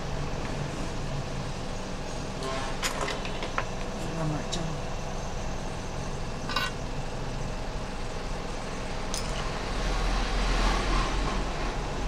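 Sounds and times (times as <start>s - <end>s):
background rumble and hiss: 3.1s - 9.8s.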